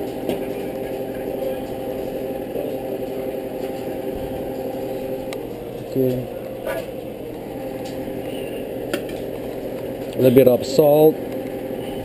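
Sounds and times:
motor hum: 0:00.0 - 0:12.0.

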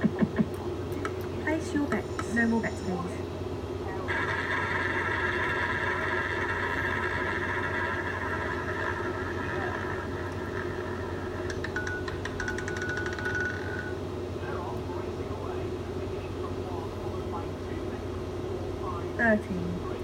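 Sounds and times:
whirring ball-rolling tone: 0:04.1 - 0:13.9.

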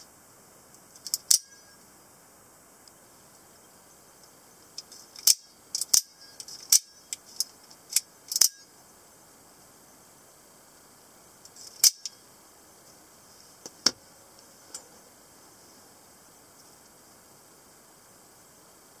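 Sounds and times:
automatic knife metallic clicks: 0:01.0 - 0:01.6, 0:05.2 - 0:07.2, 0:07.9 - 0:08.6, 0:11.8 - 0:12.1.

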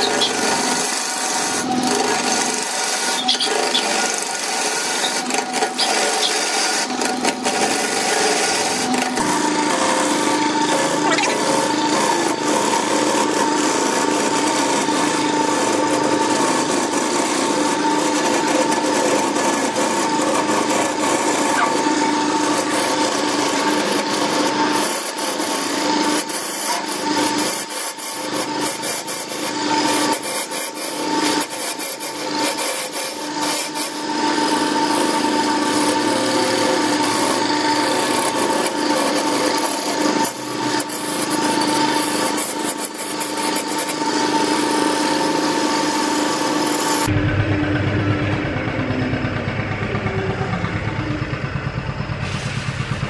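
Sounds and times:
lathe gouge scraping wood: 0:00.0 - 0:47.2
steady hum: 0:47.1 - 0:52.2.

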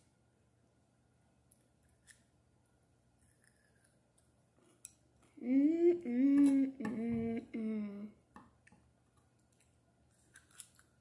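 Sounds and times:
girl humming: 0:05.4 - 0:08.2.

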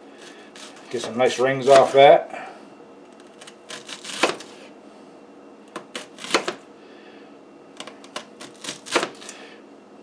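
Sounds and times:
knife slicing onion: 0:00.2 - 0:01.0, 0:03.2 - 0:04.6, 0:05.7 - 0:06.6, 0:07.8 - 0:09.4.

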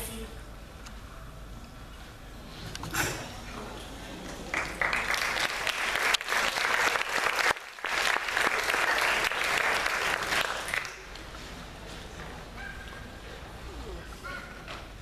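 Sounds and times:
audience applauding: 0:04.5 - 0:11.1.

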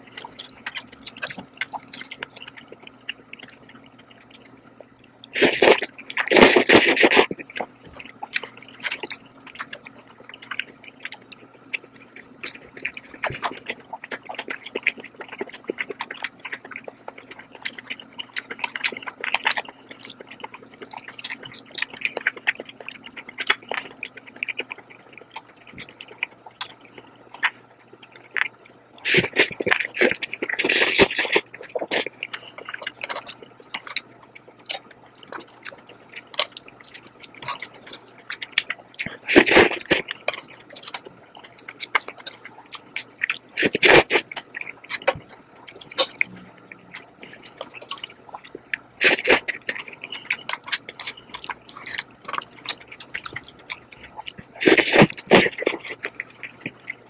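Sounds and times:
wet chewing and mouth clicks: 0:00.0 - 0:57.0
slurping noodles: 0:05.4 - 0:08.0, 0:29.0 - 0:34.0, 0:39.0 - 0:41.0, 0:43.3 - 0:48.4, 0:49.0 - 0:57.0.

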